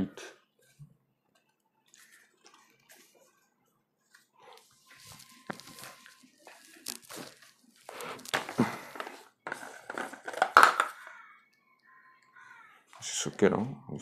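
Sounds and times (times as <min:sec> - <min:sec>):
plastic scraping and crackling: 0:00.6 - 0:11.3.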